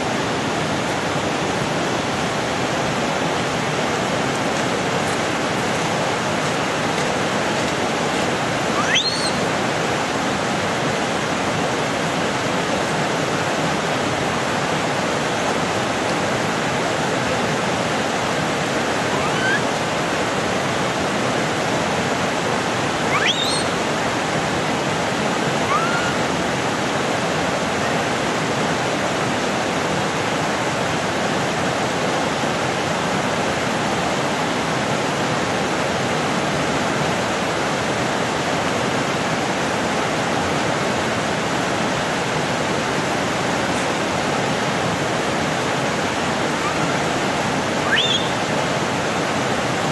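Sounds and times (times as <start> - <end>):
flowing water rushing: 0.0 - 49.9
short rising high-pitched calls: 8.7 - 9.5, 19.0 - 19.8, 23.0 - 23.8, 25.6 - 26.3, 47.8 - 48.5.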